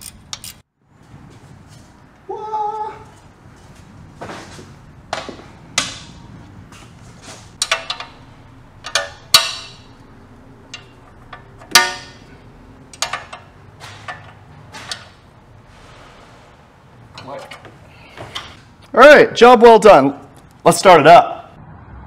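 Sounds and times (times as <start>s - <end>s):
metal tools clinking and clanking: 7.6s - 10.0s, 10.7s - 15.3s, 17.1s - 18.6s.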